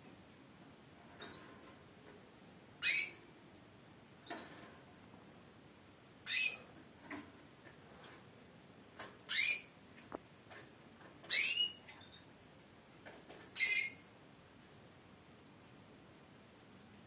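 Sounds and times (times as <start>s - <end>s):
canary chirping: 1.0s - 1.7s, 2.7s - 3.3s, 4.2s - 4.7s, 6.2s - 7.2s, 9.0s - 12.4s, 13.3s - 14.1s.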